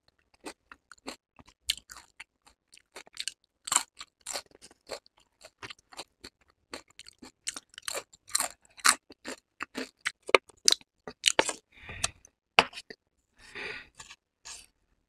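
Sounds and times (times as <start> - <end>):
fork scraping plate: 14.0 - 14.7.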